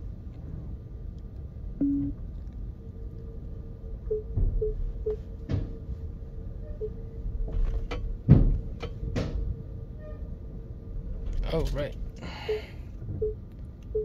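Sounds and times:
knocks and clunks: 5.4 - 5.8, 7.4 - 9.5
heavy thump: 7.5 - 9.4.

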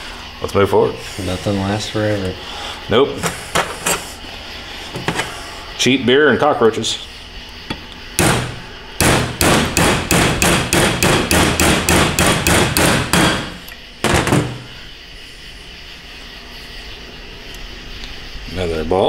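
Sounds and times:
hammer striking metal: 8.2 - 14.7.

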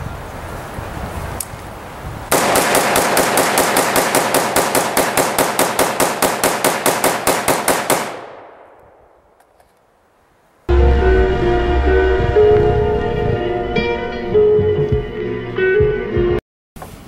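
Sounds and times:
rifle rapid fire: 2.3 - 8.8.

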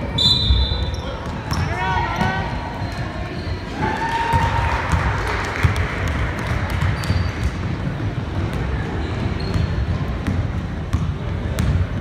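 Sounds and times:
sneaker squeaks: 0.0 - 3.8, 6.8 - 7.6, 8.9 - 11.0
basketball bouncing: 1.2 - 2.4, 4.3 - 12.0.

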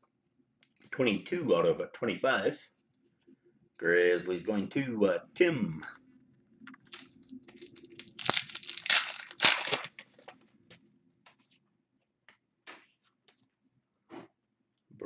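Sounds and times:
foil pack tearing and crinkling: 6.9 - 10.3.

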